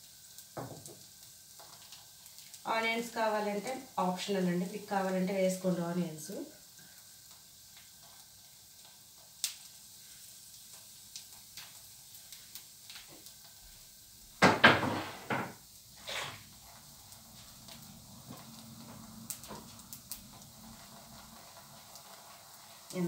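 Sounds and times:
utensil knock: 14.4 - 15.6.

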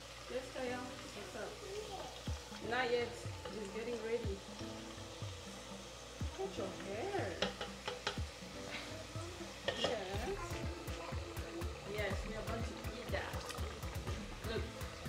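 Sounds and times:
hot oil sizzling in deep fryer: 0.0 - 15.0.

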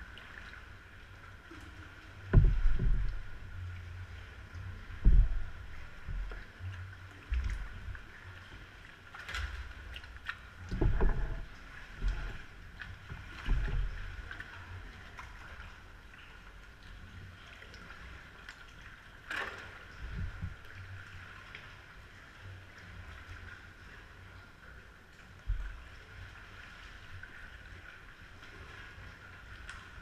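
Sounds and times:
paddle splashes: 0.0 - 30.0
water sloshing against hull: 0.0 - 30.0
dull low thumps: 2.3 - 6.6.

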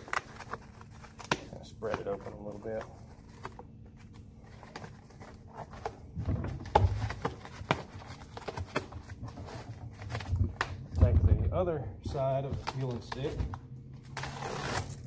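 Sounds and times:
heavy thumps: 10.2 - 12.6.

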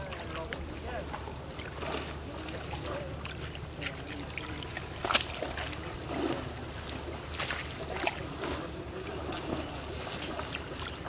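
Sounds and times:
water trickling from net: 0.0 - 11.0
splash of stepping out: 3.2 - 8.7.

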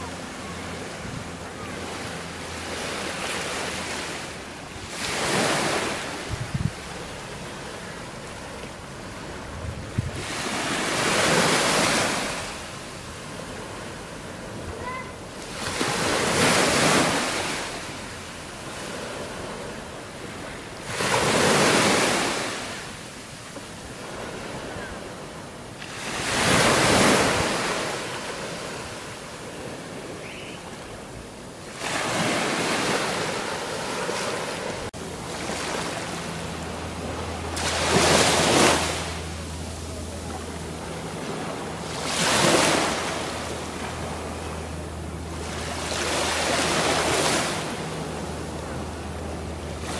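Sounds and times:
small waves breaking on beach: 0.0 - 49.9
low steady hum: 33.5 - 49.9.

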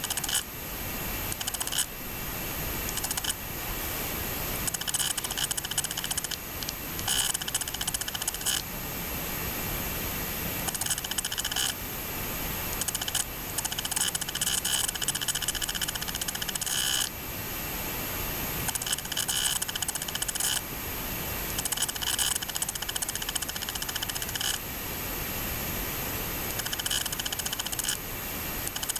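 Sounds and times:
rapid clicking: 0.0 - 0.5, 1.3 - 1.9, 2.8 - 3.4, 4.6 - 8.6, 10.7 - 11.8, 12.8 - 17.1, 18.7 - 20.6, 21.5 - 24.6, 26.5 - 28.0, 28.6 - 28.9
mechanical running whine: 0.0 - 28.9.

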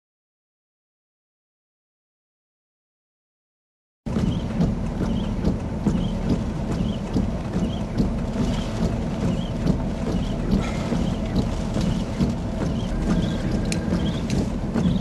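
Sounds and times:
wind gusting across microphone: 4.1 - 15.0.

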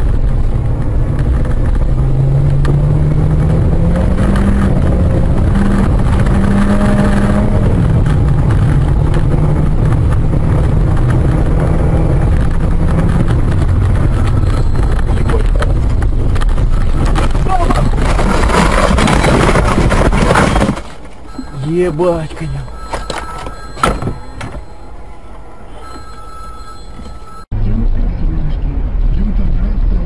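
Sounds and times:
car engine accelerating: 0.0 - 20.6
road rumble: 0.0 - 30.0.

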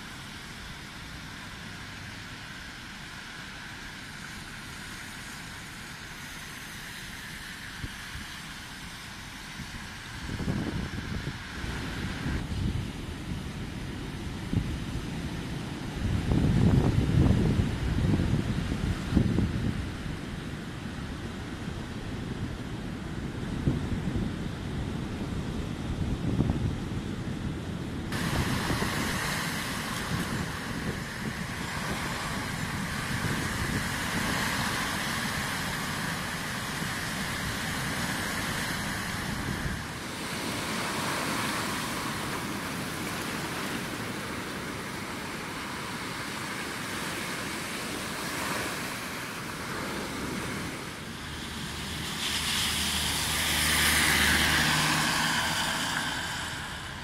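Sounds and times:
wind buffeting microphone: 9.5 - 57.0
car driving past on wet road: 28.1 - 57.0
surf breaking: 28.1 - 57.0.

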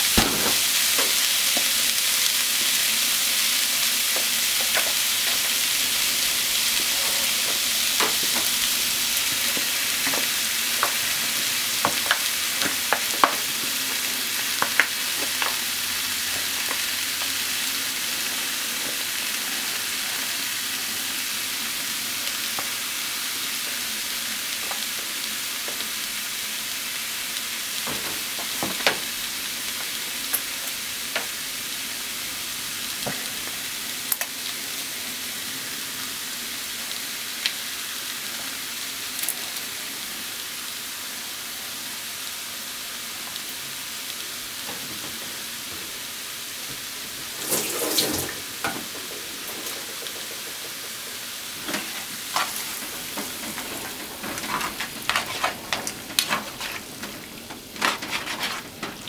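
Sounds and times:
food sizzling in frying pan: 0.0 - 59.0
utensil clacking in pan: 47.5 - 59.0.

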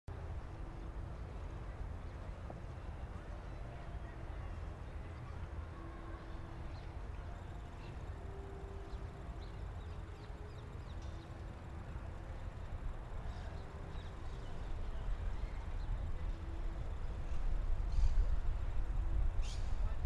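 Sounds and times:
wind rumble on microphone: 9.0 - 20.0.

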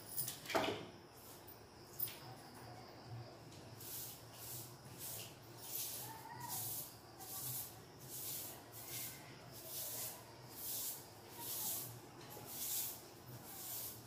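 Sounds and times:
broom sweeping concrete floor: 1.1 - 2.3, 3.4 - 14.0.

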